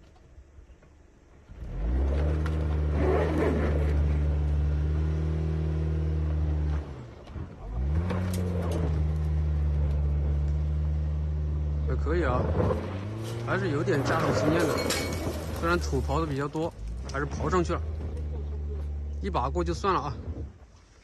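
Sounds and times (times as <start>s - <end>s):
car engine revving hard: 1.6s - 7.0s
tyres scattering dirt and gravel: 12.2s - 19.1s.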